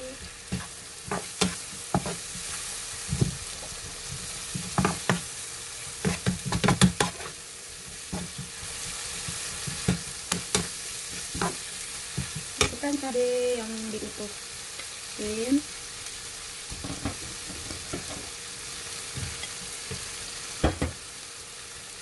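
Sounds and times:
paste sizzling in oil: 0.0 - 22.0
spatula scraping and knocking pan: 0.5 - 5.3, 6.0 - 12.8, 16.7 - 18.3.

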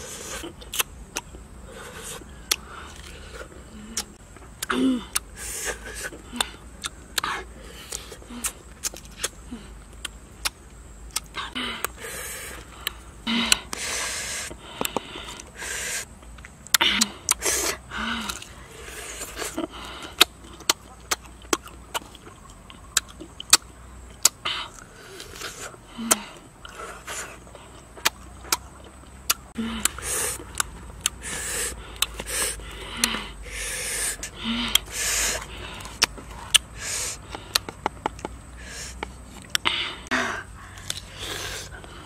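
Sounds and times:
crunching bites of pods: 0.0 - 42.0
sharp intakes of breath: 1.6 - 4.1, 4.9 - 8.6, 11.4 - 16.2, 29.5 - 37.8, 38.5 - 42.0
slurps: 24.2 - 42.0.

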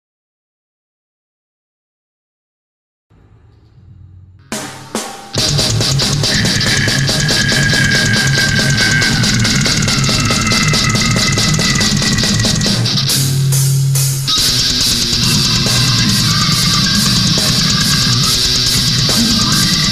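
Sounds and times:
distorted guitars: 4.4 - 19.9
fast heavy metal drumming: 4.4 - 19.9.

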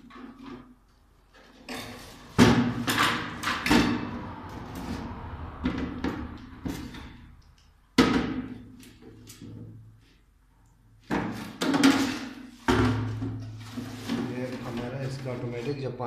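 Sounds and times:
plastic parts knocking and clattering: 11.0 - 15.4.

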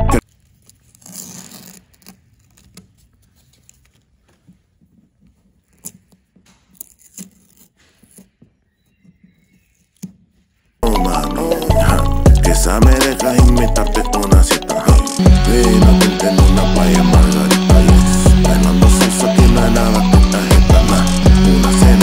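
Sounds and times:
masking tape tearing off: 0.2 - 4.0, 5.6 - 8.4.

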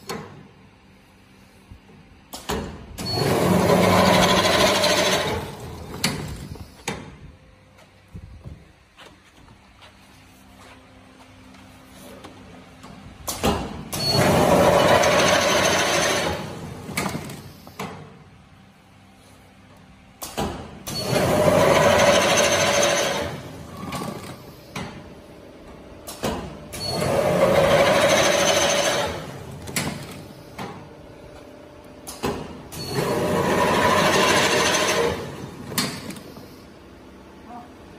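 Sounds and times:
machine whine: 3.0 - 6.9, 13.9 - 17.8, 20.8 - 24.6, 26.7 - 30.6, 32.1 - 36.9.

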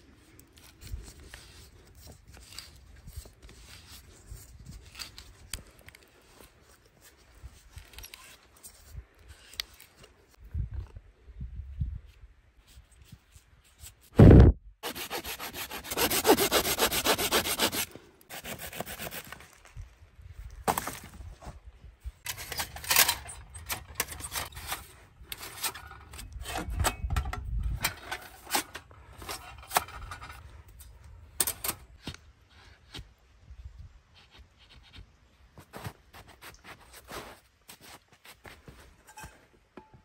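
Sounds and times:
hand saw cutting wood: 14.8 - 19.4.

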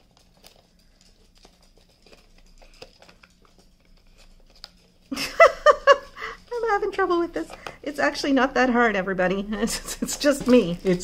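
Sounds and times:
paper rustling: 0.0 - 5.2
woman's voice: 6.5 - 11.0.

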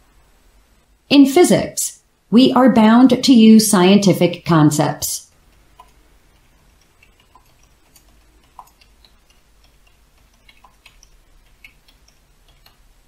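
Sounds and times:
computer keyboard typing: 5.3 - 13.0.

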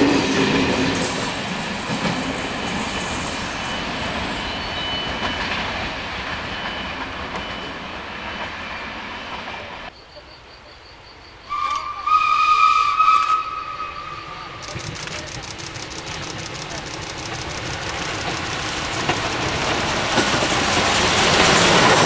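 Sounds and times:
train wheels clattering and rumbling: 0.0 - 9.9, 14.6 - 22.0.

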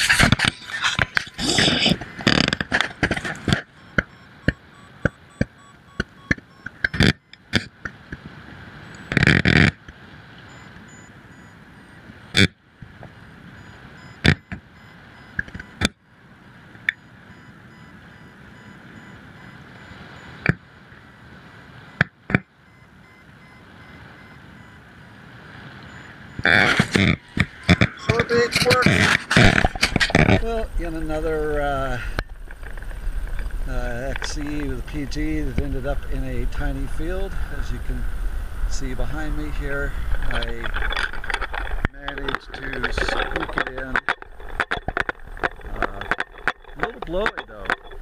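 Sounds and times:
wind rushing over microphone: 23.1 - 48.0
sharp clicks and knocks: 40.2 - 48.0.

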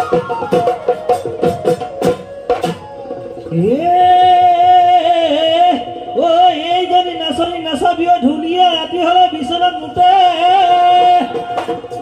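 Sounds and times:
drum strokes: 0.0 - 3.6, 10.5 - 12.0.

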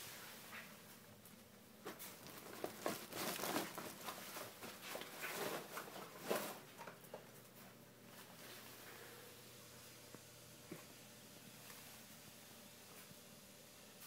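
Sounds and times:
rustling and crinkling: 0.0 - 9.0.

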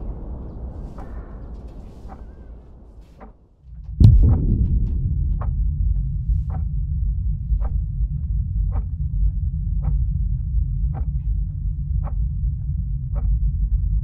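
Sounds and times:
low rumbling drone: 4.0 - 14.0.

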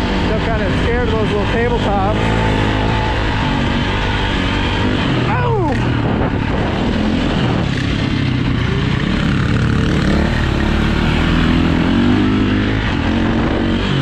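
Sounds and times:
motorcycle engine under throttle: 0.0 - 14.0.

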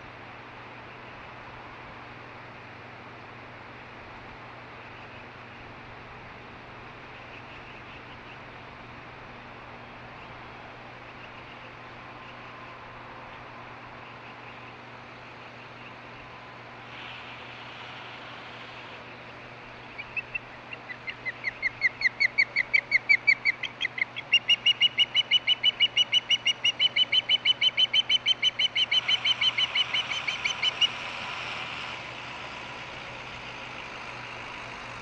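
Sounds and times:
osprey whistled chirps: 19.9 - 31.0.

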